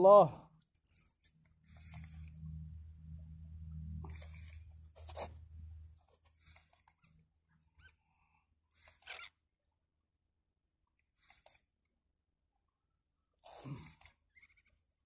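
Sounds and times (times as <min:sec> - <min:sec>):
low hum: 0:00.5 - 0:08.4.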